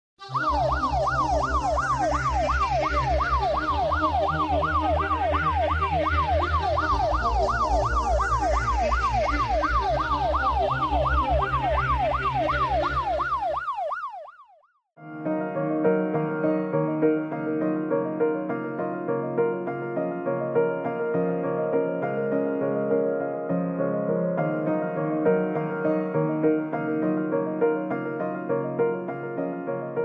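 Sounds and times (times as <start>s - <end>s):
ambulance siren yelping: 0.2s - 14.8s.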